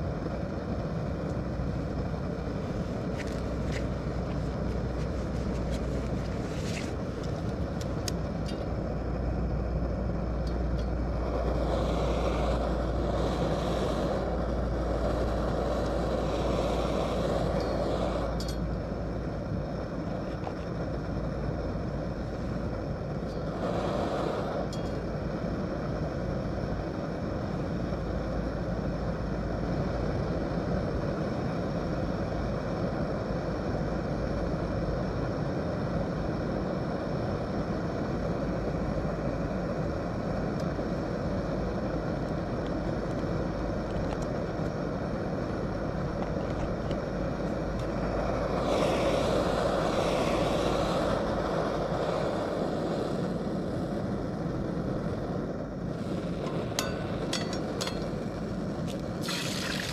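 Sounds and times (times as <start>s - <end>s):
stove burner hissing: 0.0s - 59.9s
eggs frying: 56.4s - 59.9s.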